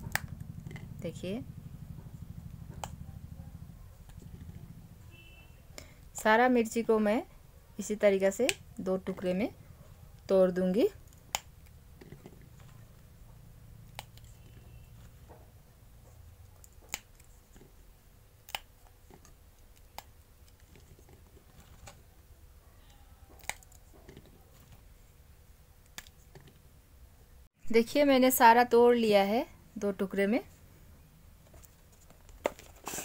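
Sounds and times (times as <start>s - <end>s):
chillies snapping: 18.4s - 18.8s, 23.3s - 23.8s.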